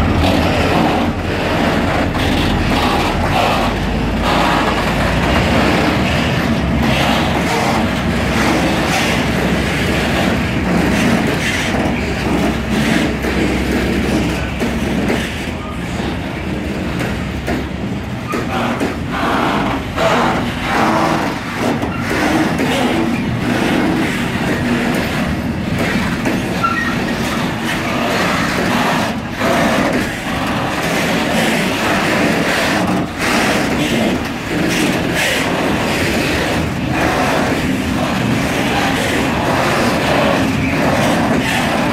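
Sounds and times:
freight train wheels clattering: 0.0s - 41.9s.

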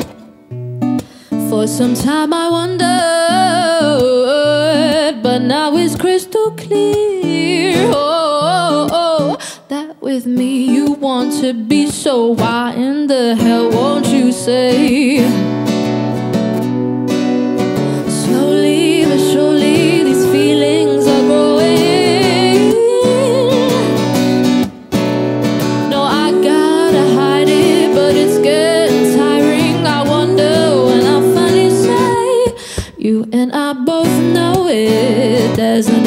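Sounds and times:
strummed acoustic guitar: 0.0s - 9.6s, 10.3s - 33.0s, 34.0s - 36.0s
woman singing: 1.3s - 15.6s, 17.1s - 24.2s, 25.8s - 36.0s.

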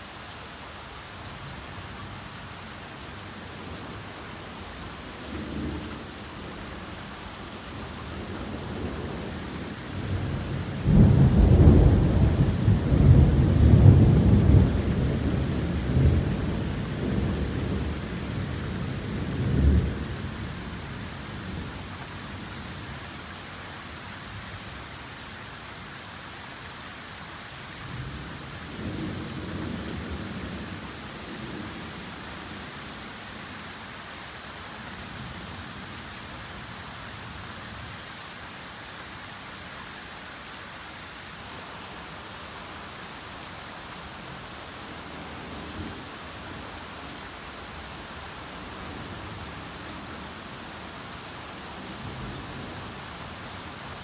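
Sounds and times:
torrential rain hissing: 0.0s - 54.0s
thunder rumbling: 10.0s - 18.3s.

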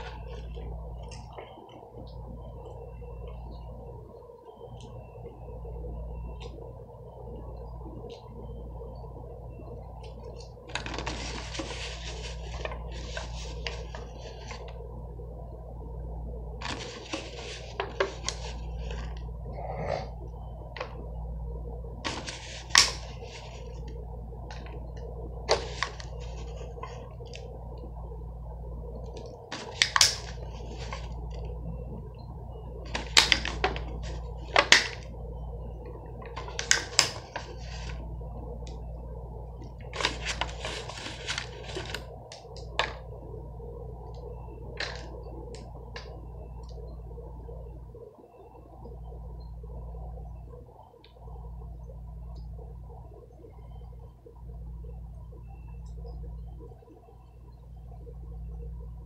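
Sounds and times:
steady low hum: 0.0s - 59.0s
plastic packaging crinkling: 10.3s - 14.8s, 39.6s - 43.0s.

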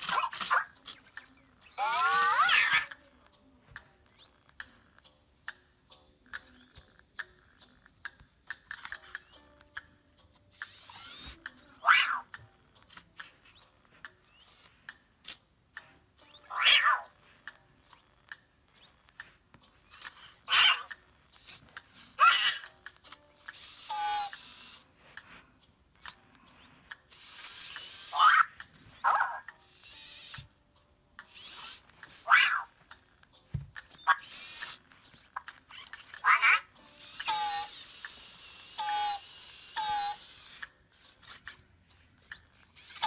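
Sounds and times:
toy robot electronic chirps: 0.0s - 3.3s, 4.0s - 5.0s, 6.2s - 9.4s, 10.5s - 14.7s, 16.2s - 17.2s, 17.8s - 24.9s, 26.0s - 30.4s, 31.2s - 32.7s, 33.8s - 41.6s, 42.2s - 43.0s
small motors clicking and whirring: 0.0s - 43.0s.

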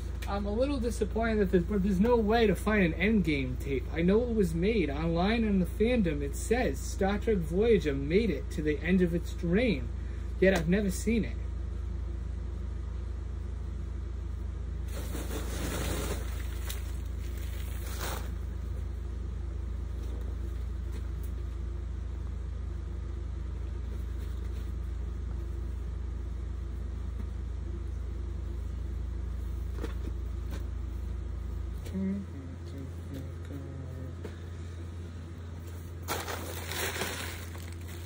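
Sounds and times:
steady low hum: 0.0s - 38.0s
bubble wrap rustling: 14.9s - 18.5s, 36.0s - 38.0s.

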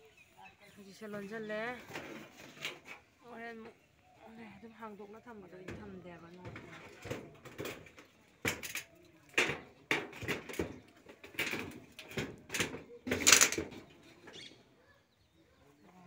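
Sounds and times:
bamboo poles clanking on metal sheeting: 1.0s - 3.8s, 5.3s - 14.6s.

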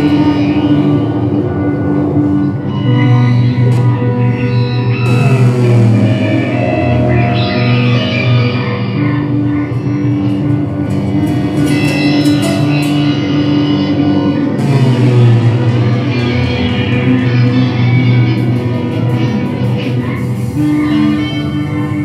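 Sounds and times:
bass sustained notes: 0.0s - 22.0s
electric guitar sustained notes: 0.0s - 22.0s
looped electronic sounds: 1.7s - 10.2s, 14.6s - 22.0s.

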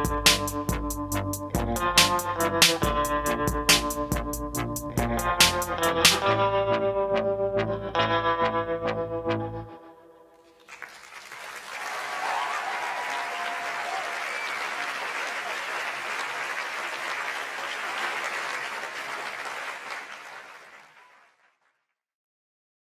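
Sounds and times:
audience applauding: 10.4s - 21.8s.

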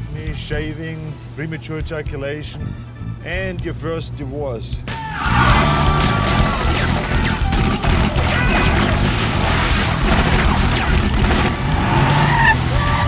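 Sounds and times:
film score music: 0.0s - 13.0s
crashing smashing impacts: 6.4s - 11.9s
rapid automatic gunfire: 6.7s - 11.6s.

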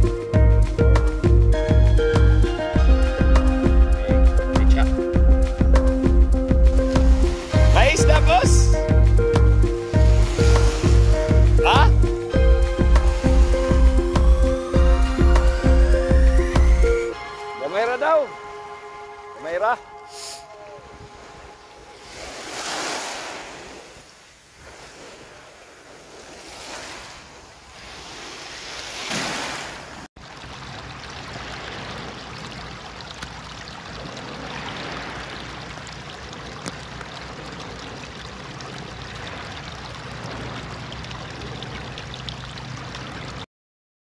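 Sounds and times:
small waves washing onto beach: 6.6s - 43.4s
shallow water running over stones: 6.7s - 16.8s, 30.2s - 43.4s.

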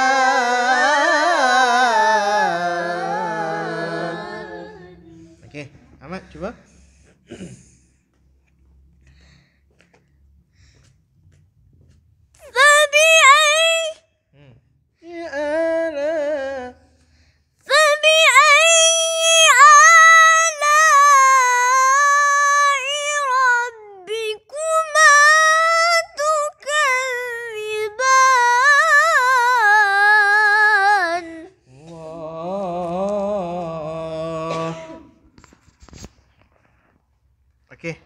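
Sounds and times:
low male voice reciting: 5.4s - 6.7s.

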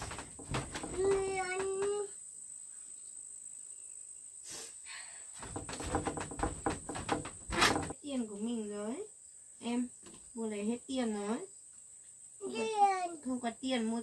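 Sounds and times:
knocks and rustles on wooden floor: 0.0s - 2.1s, 5.4s - 8.0s
high insect trill: 0.0s - 14.0s.

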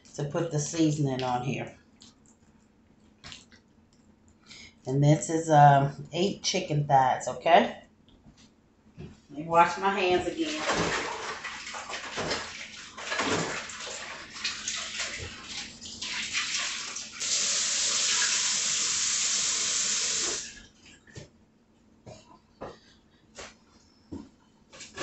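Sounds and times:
faucet water running: 10.4s - 20.6s.

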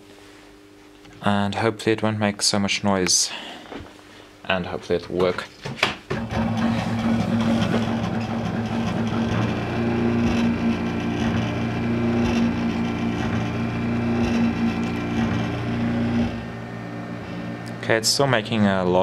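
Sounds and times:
stepper motors humming: 6.2s - 19.0s.

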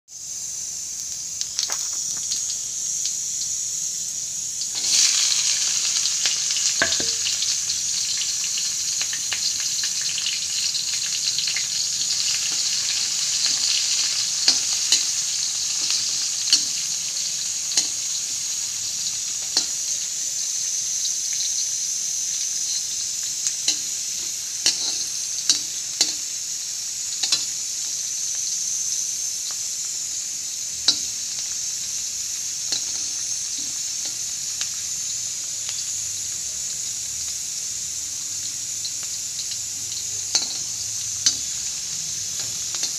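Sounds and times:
onions sizzling in oil: 0.1s - 42.9s
metal spoon striking pan: 6.8s - 7.4s, 24.6s - 26.2s, 40.3s - 41.5s.

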